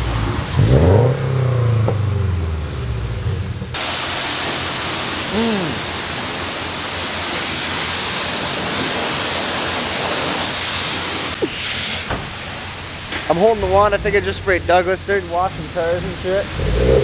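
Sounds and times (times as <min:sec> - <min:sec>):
pressure washer spraying water: 0:03.8 - 0:17.0.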